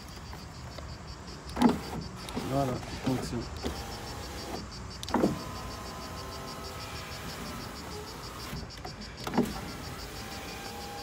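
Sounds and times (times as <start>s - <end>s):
window glass clunk: 1.5s - 6.6s, 7.2s - 10.0s
electric window motor whine: 1.5s - 11.0s.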